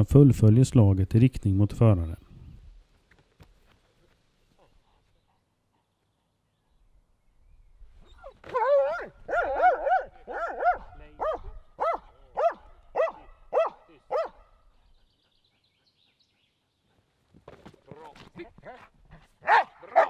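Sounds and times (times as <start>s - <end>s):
dog barking: 8.5s - 14.6s, 19.4s - 20.0s.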